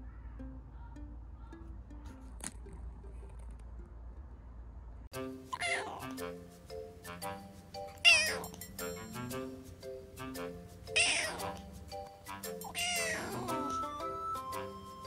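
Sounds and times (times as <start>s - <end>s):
kitten meowing: 5.6s - 6.1s, 8.0s - 8.5s, 11.0s - 11.6s, 12.7s - 13.8s.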